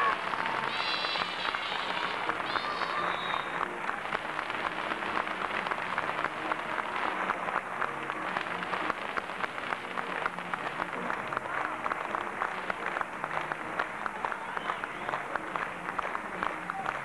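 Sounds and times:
high-pitched cry from crowd: 0.0s - 3.6s
audience clapping: 0.0s - 17.0s.

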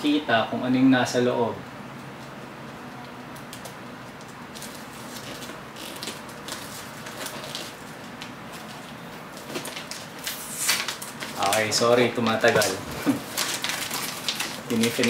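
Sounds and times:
wrapping paper rustling: 3.5s - 15.0s.

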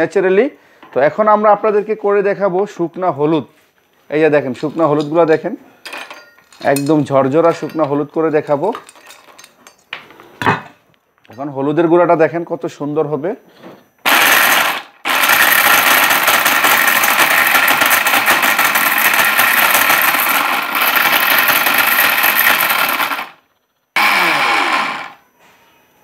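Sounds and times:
mixer grinder motor running: 14.0s - 23.4s, 24.0s - 25.2s.

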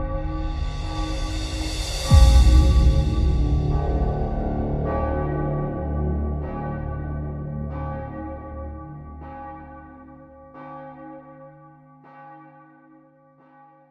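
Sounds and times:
low sustained hum: 0.0s - 9.2s
church bell tolling: 0.0s - 13.8s.

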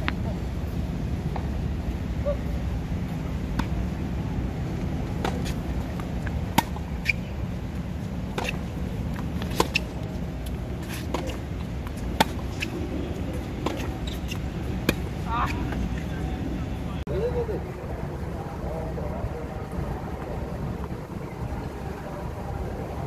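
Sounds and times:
steady low rumble: 0.0s - 23.0s
tennis balls struck and bouncing: 3.0s - 16.2s.

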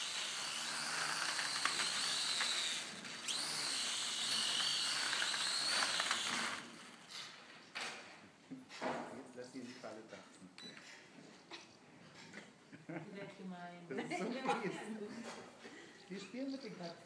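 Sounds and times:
toy drone motors whining: 0.0s - 6.8s.

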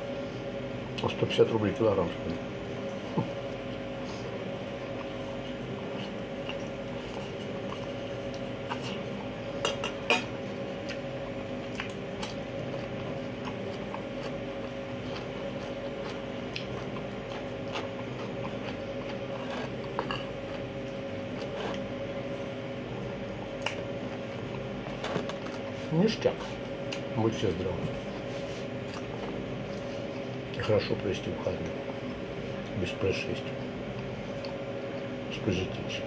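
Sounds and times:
steady hum: 0.0s - 36.0s
chewing: 4.2s - 10.1s, 10.8s - 22.1s, 27.9s - 30.7s, 33.9s - 35.1s.

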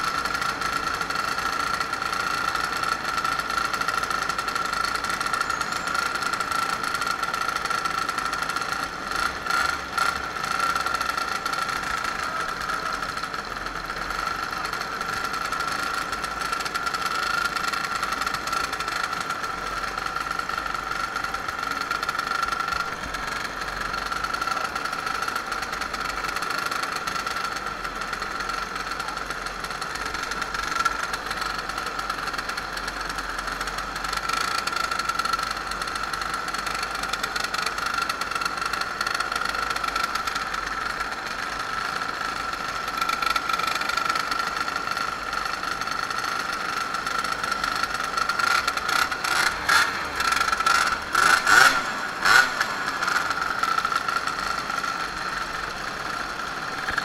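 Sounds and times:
moped engine drone: 0.0s - 57.0s
road and wind noise: 0.0s - 57.0s.

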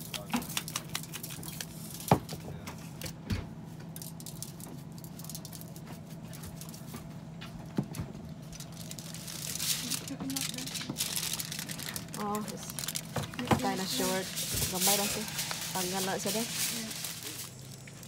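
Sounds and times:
aluminium foil crinkling: 0.0s - 2.1s, 4.0s - 7.1s, 8.2s - 18.0s
steady low hum: 0.0s - 18.0s.

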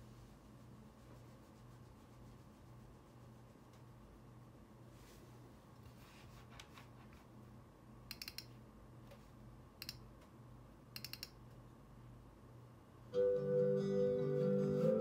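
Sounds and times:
low steady hum: 0.0s - 15.0s
sharp little clicks: 8.1s - 8.5s, 9.8s - 10.1s, 11.0s - 11.5s.

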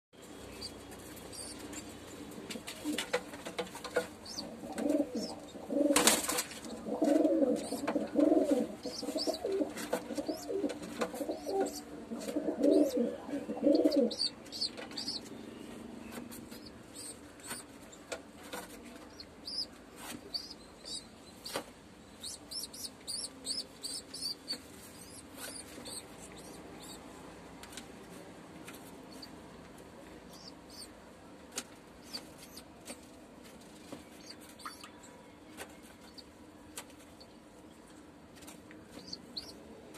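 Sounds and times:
pigeon cooing: 4.2s - 6.0s, 6.6s - 15.2s
squab begging peeps: 13.6s - 15.3s, 22.2s - 27.0s.

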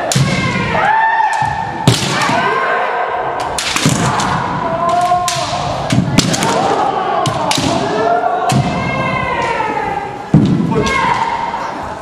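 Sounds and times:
bamboo sword strikes cracking: 3.4s - 6.7s.

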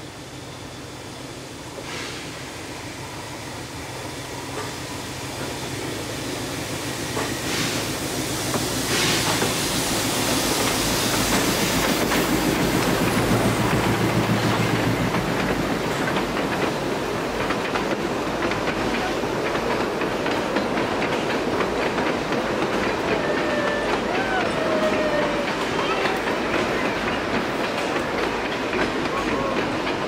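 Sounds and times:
steam locomotive rumble: 0.0s - 30.0s
wheels clicking over rail joints: 10.6s - 30.0s.

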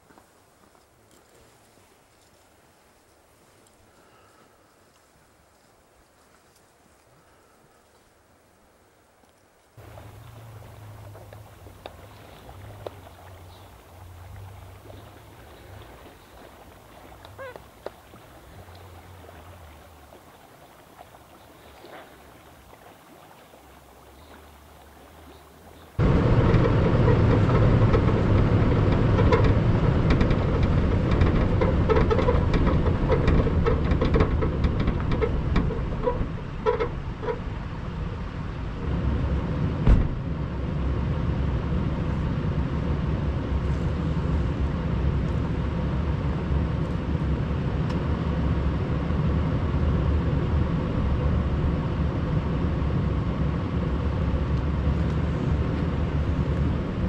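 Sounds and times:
low engine rumble: 9.8s - 57.0s
thump: 39.8s - 40.3s.

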